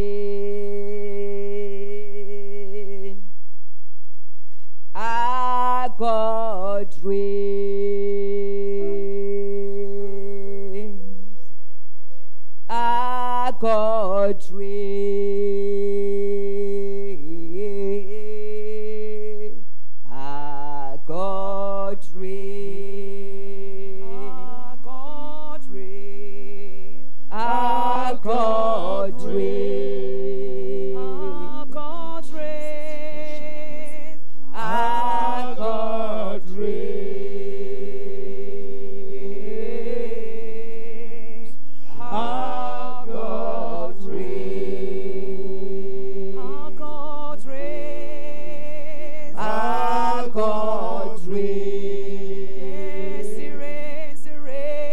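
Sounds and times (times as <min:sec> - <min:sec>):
woman singing: 0:00.0 - 0:03.2, 0:05.0 - 0:11.2, 0:12.7 - 0:36.9, 0:45.9 - 0:54.9
backing singers: 0:27.3 - 0:32.6, 0:34.5 - 0:41.1, 0:41.9 - 0:47.8, 0:49.3 - 0:54.2.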